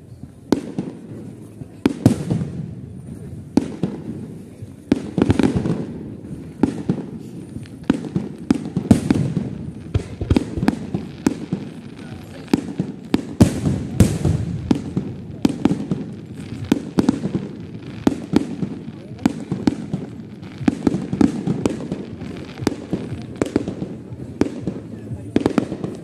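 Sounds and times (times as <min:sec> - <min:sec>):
fireworks bangs and crackles: 0:00.0 - 0:26.0.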